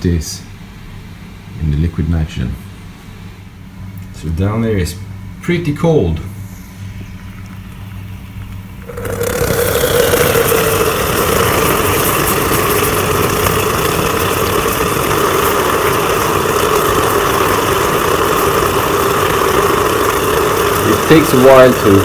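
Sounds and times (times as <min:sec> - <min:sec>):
liquid nitrogen boiling violently: 0:07.2 - 0:22.0.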